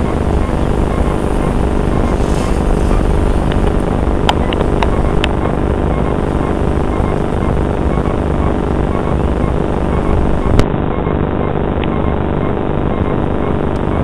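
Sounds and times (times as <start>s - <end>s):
aircraft engines rumbling: 0.0s - 10.6s
wind noise on microphone: 0.0s - 11.0s.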